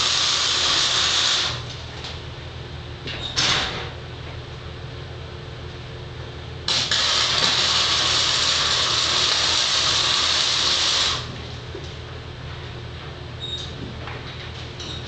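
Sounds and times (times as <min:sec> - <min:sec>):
arc welding crackling: 0:00.0 - 0:02.0, 0:06.7 - 0:11.3.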